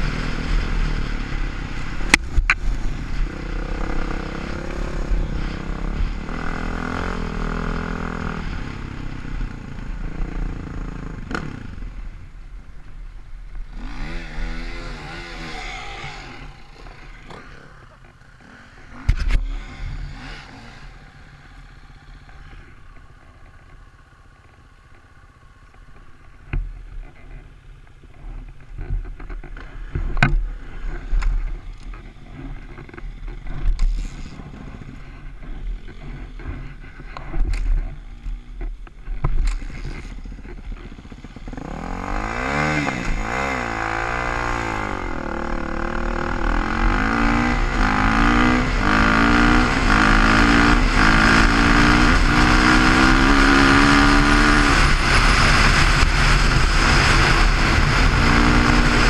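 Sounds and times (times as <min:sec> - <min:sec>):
dirt bike engine revving: 0:00.0 - 0:11.9, 0:13.6 - 0:23.8, 0:39.4 - 0:59.0.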